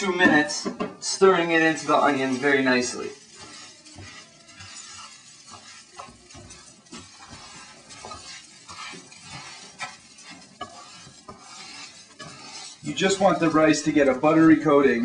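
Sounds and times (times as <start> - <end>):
rice sizzling in a frying pan: 0.0 - 15.0
spoon scraping and clicking on pan: 0.1 - 14.3.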